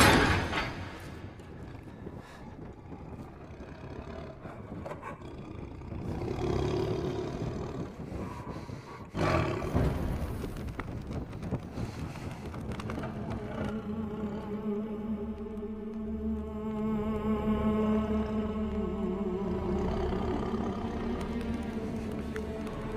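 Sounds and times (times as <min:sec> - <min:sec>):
lion roaring and growling: 0:01.4 - 0:10.6.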